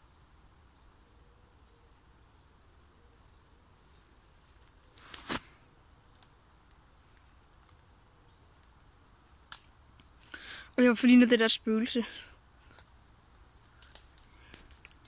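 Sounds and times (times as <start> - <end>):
twigs snapping and rustling: 4.4 - 10.3, 12.6 - 15.0.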